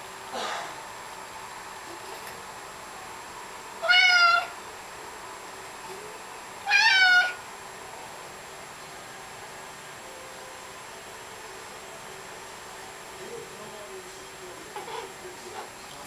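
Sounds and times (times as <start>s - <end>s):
cat meowing: 3.8s - 4.6s, 6.6s - 7.4s.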